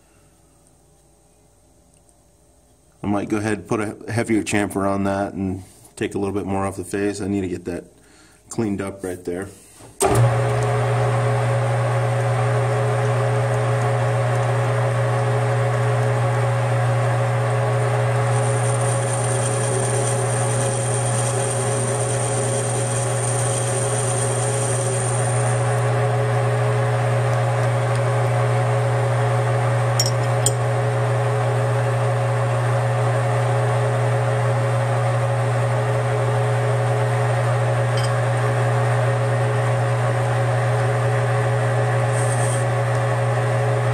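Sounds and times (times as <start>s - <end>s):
metal lathe humming: 17.7s - 28.1s, 37.8s - 38.6s, 42.0s - 43.1s.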